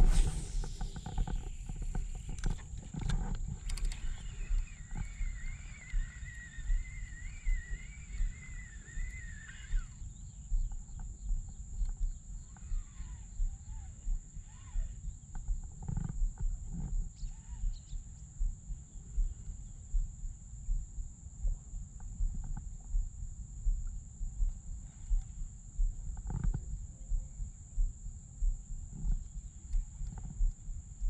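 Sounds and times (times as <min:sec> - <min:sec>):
wavering whistle-like tone: 0:00.0 - 0:02.5, 0:03.9 - 0:10.0
faint high whine: 0:00.0 - 0:15.9
wind buffeting microphone: 0:00.0 - 0:20.8.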